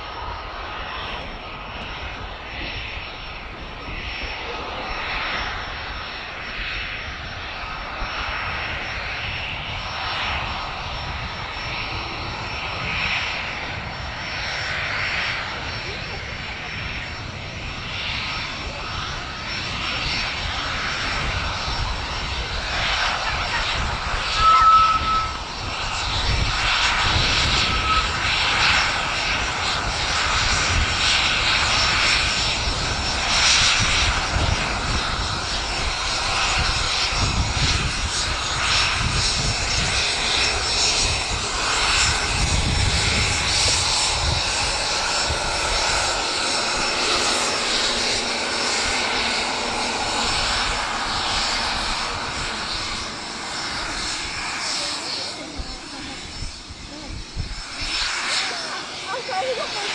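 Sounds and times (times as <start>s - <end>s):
jet engines running: 0.0s - 59.9s
short high whistle: 24.2s - 25.5s, 27.6s - 28.3s.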